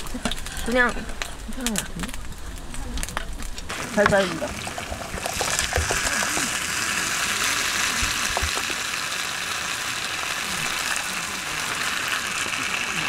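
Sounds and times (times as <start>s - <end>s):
chicken sizzling on grill pan: 3.7s - 13.0s.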